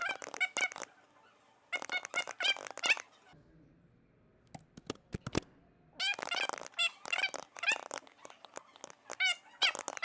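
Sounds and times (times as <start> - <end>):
keyboard keys clicking: 1.8 - 3.0, 6.1 - 10.0.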